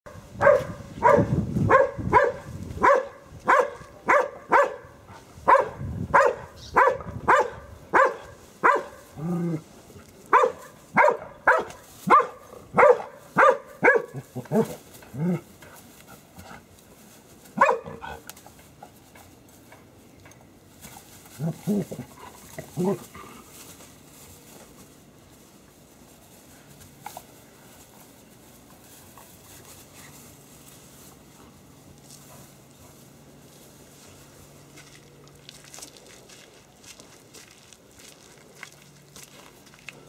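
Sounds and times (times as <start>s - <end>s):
dog barking sharply: 0.4s - 4.9s, 5.5s - 9.0s, 10.4s - 14.2s, 17.6s - 18.0s.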